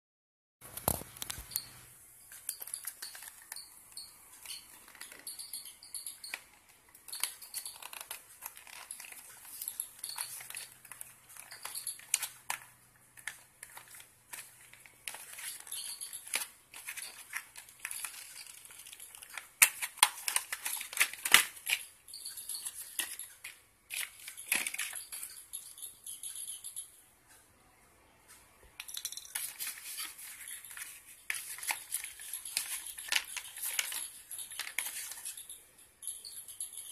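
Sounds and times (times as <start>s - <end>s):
packaging crinkling and rustling: 0.6s - 1.6s, 6.2s - 21.9s, 29.3s - 35.5s.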